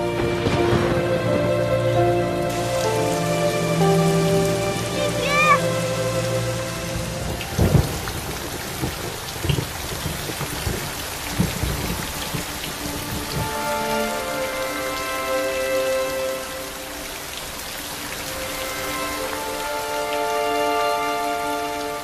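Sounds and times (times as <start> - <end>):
thunder: 0.0 - 3.2, 7.2 - 13.6
soft music: 0.0 - 8.9, 11.9 - 22.0
heavy rain pouring: 0.0 - 22.0.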